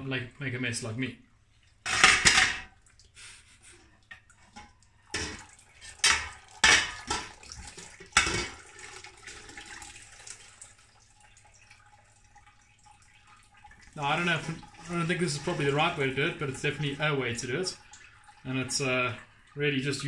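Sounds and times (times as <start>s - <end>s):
faint dripping: 2.7s - 20.0s
liquid splashing into a metal pot: 4.1s - 19.5s.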